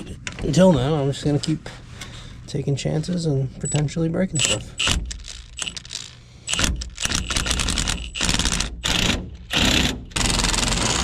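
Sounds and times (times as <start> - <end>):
impact wrench hammering a nut: 4.4 - 5.8, 6.5 - 11.0.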